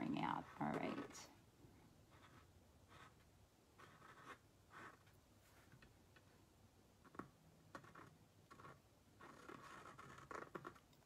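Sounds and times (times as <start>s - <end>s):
pen tip scratching: 7.1s - 10.9s.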